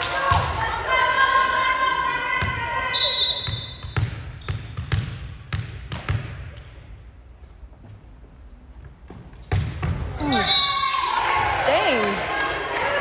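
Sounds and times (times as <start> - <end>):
hand slapping volleyball: 4.7 - 6.8.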